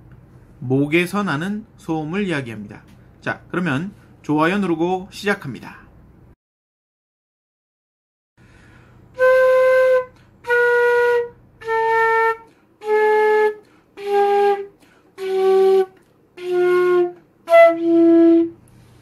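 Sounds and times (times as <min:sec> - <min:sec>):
flute player breathing: 0:08.4 - 0:09.2, 0:10.0 - 0:10.5, 0:12.4 - 0:12.8, 0:13.6 - 0:14.0, 0:14.7 - 0:15.2, 0:18.6 - 0:19.0
flute playing held notes: 0:09.1 - 0:18.6.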